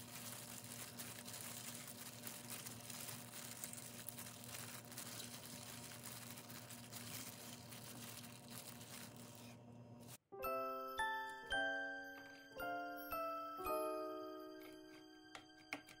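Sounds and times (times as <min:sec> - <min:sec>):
crinkling and rustling handling noises: 0:00.0 - 0:10.2.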